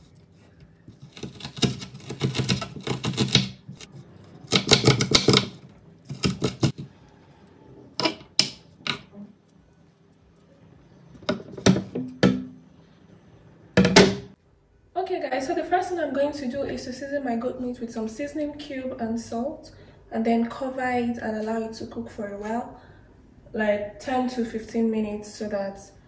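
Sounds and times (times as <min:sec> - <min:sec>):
knife chopping on wooden board: 0:04.5 - 0:06.9.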